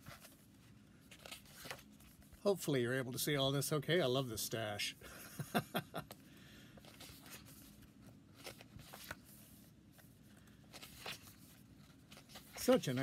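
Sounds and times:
pages rustling: 0.0s - 2.4s, 6.7s - 13.0s.

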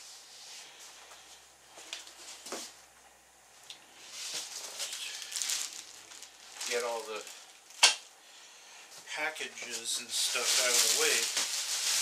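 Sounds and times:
plastic packaging crinkling: 4.1s - 8.1s, 9.6s - 12.0s.

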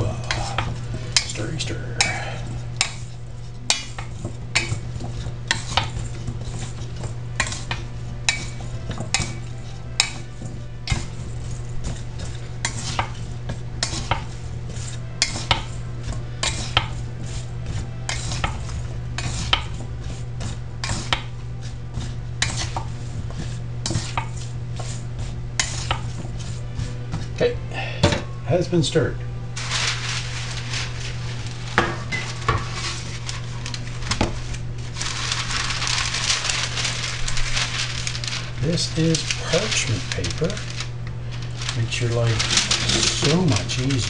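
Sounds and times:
wooden turner clacking metal bowl: 0.0s - 17.0s, 29.6s - 44.0s
steady low hum: 0.0s - 44.0s
wet shuffle of food cubes: 29.6s - 44.0s.

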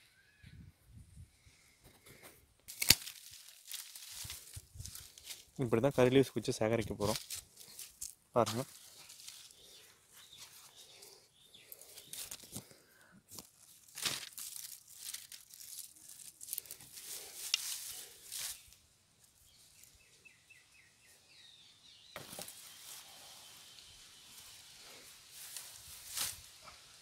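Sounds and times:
stalks snapping: 2.7s - 5.5s, 13.4s - 17.8s
leafy branches rustling: 2.7s - 20.1s, 22.2s - 27.0s.

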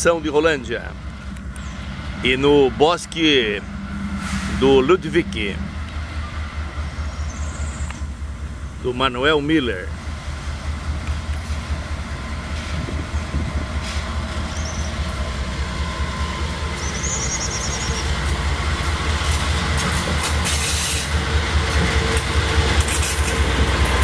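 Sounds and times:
train engine rumble: 0.0s - 24.0s
train wheels clicking over rail joints: 9.9s - 24.0s.

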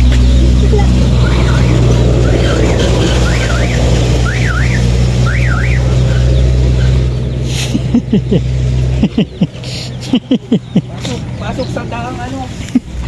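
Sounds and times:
vehicle engine running: 0.0s - 13.0s
alarm tone sweeping up and down: 0.4s - 6.8s.

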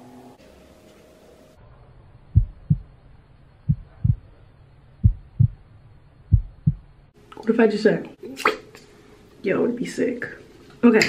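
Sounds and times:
faint steady tones: 0.1s - 7.2s
heartbeat thumps: 2.3s - 3.0s, 3.6s - 4.4s, 5.0s - 5.7s, 6.3s - 7.0s.

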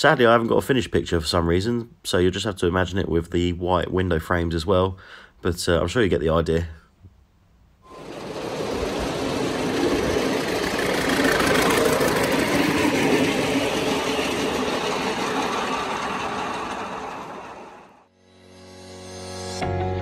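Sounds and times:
small steam locomotive running: 7.9s - 18.1s.

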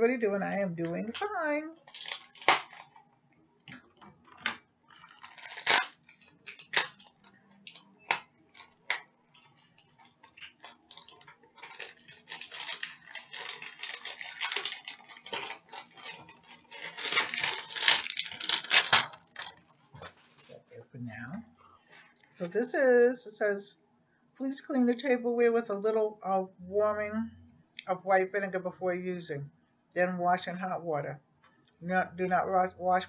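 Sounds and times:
cardboard rustling and scraping: 19.7s - 20.7s.

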